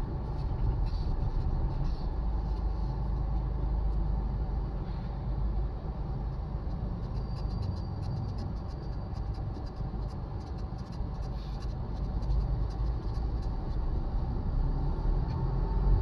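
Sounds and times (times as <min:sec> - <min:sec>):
road traffic rumble: 0:00.0 - 0:16.0
faint irregular clicks: 0:06.3 - 0:14.1.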